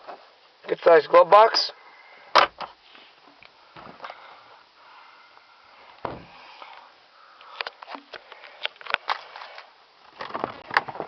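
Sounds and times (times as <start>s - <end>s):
dull thump: 6.0s - 6.4s.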